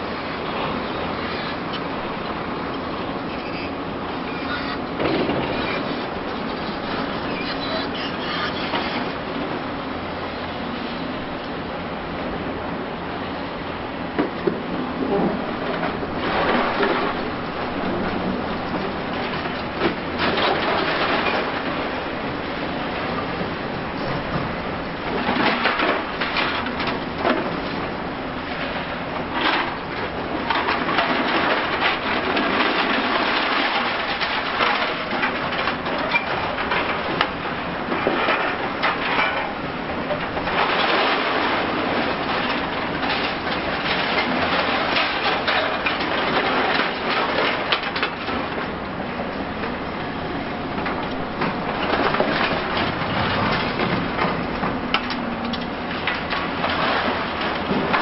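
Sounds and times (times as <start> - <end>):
excavator crunching concrete: 0.2 - 10.2, 14.0 - 58.0
falling debris: 15.0 - 23.4, 24.2 - 58.0
rubble clattering: 15.0 - 58.0.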